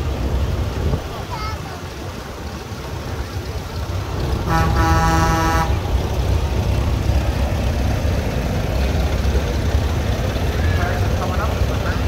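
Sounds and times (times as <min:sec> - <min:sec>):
engines rumbling low: 0:00.0 - 0:12.0
vehicle horn blast: 0:04.4 - 0:05.8.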